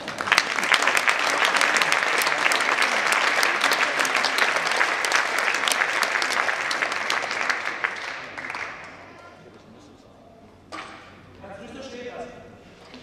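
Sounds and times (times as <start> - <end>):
audience clapping: 0.0 - 9.2.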